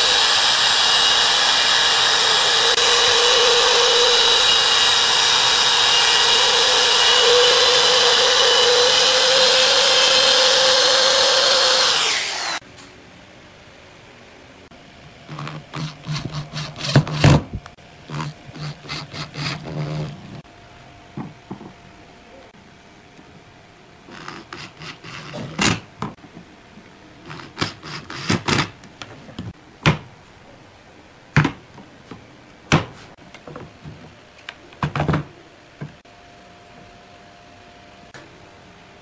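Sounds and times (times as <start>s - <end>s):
electric drill driving screws: 0.0s - 12.6s.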